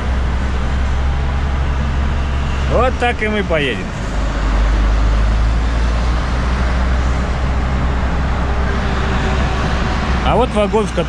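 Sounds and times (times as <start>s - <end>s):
heavy traffic noise: 0.0s - 11.0s
truck diesel engine rumble: 0.0s - 11.0s.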